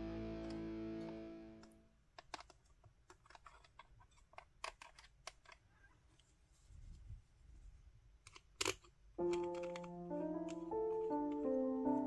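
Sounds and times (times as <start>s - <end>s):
music: 0.0s - 1.6s, 9.2s - 12.0s.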